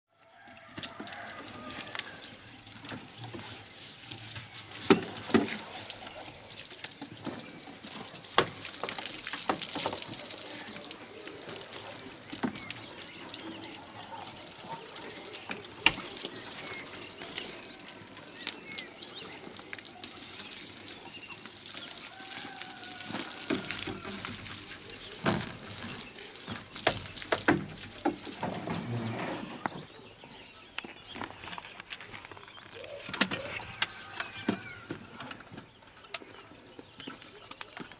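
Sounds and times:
hose water spraying on metal: 0:00.3 - 0:30.0.

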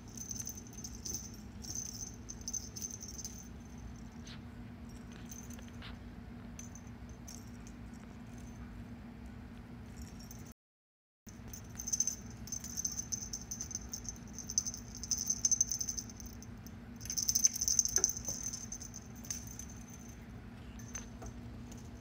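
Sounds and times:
small jingle bell jingling: 0:00.0 - 0:05.8, 0:09.9 - 0:10.6, 0:11.3 - 0:20.2.

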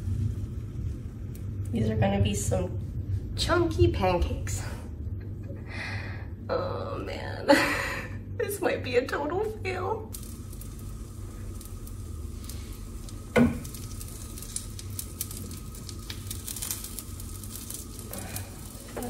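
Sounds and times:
batter sizzling in a pan: 0:00.0 - 0:01.7, 0:10.0 - 0:19.0.

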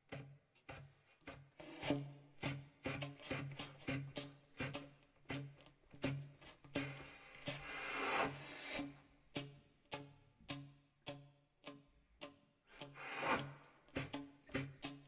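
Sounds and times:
rubbing scraping noise: 0:00.2 - 0:09.5, 0:12.7 - 0:15.0.

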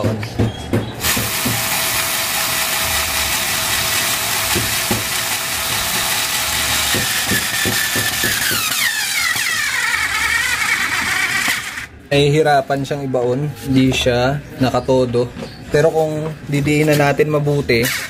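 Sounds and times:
cordless screwdriver motor whining: 0:01.0 - 0:11.9.

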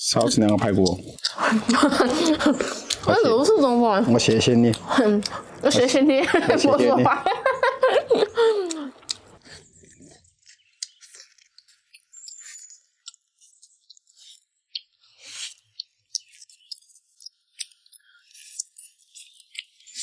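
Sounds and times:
utensils clinking against bowls: 0:00.0 - 0:01.3
chewing: 0:00.0 - 0:06.0, 0:08.1 - 0:20.0.

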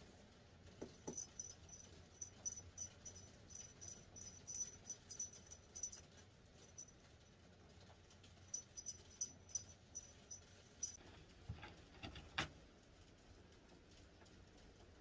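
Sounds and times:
small bell jingling: 0:00.8 - 0:07.3, 0:08.4 - 0:11.0.

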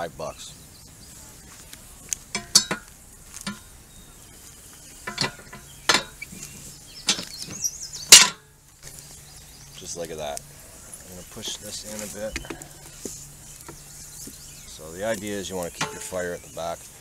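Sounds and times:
fire poker knocking on steel: 0:02.3 - 0:03.7, 0:05.0 - 0:06.2, 0:15.7 - 0:16.2
metal grate clanking: 0:02.3 - 0:03.7, 0:05.0 - 0:06.4, 0:07.0 - 0:08.5, 0:15.3 - 0:16.4.

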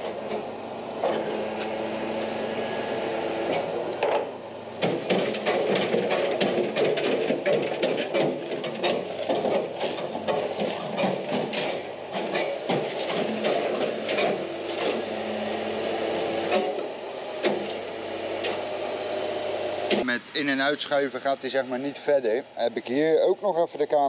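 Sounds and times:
hydraulic hum: 0:00.0 - 0:22.6
truck bed rattling clanks: 0:03.6 - 0:15.0.

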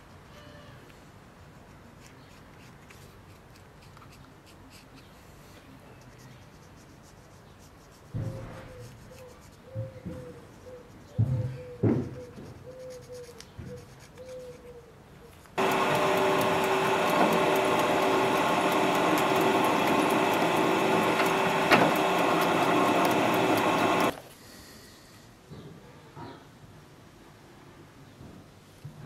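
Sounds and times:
drill press cutting metal: 0:15.6 - 0:24.1.

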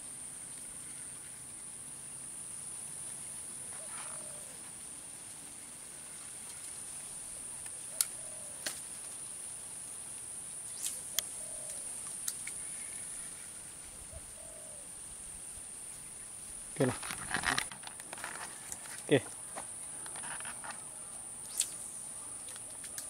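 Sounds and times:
insects droning: 0:00.0 - 0:23.0
sharp clicks: 0:21.4 - 0:21.8.

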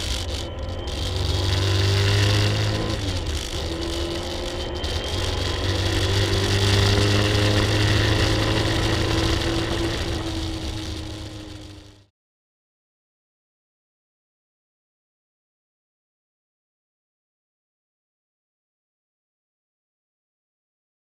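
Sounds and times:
car engine accelerating hard: 0:00.0 - 0:12.1.

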